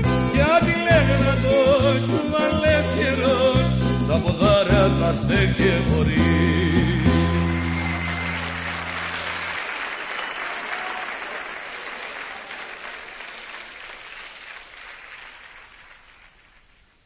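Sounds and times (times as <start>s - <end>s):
audience applause: 7.0s - 17.0s.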